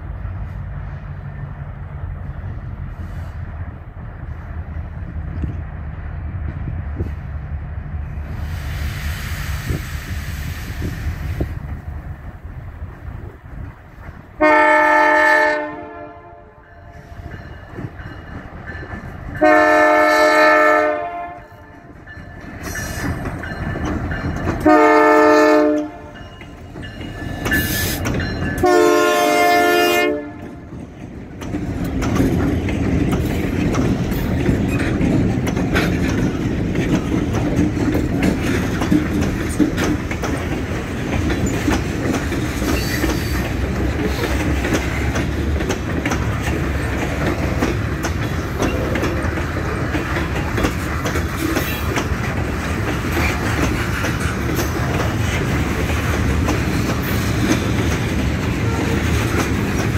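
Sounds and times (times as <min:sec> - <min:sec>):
train cars rolling on rails: 0:00.0 - 0:59.9
locomotive air horn: 0:14.4 - 0:16.7, 0:19.4 - 0:21.7, 0:24.6 - 0:26.2, 0:28.6 - 0:30.5.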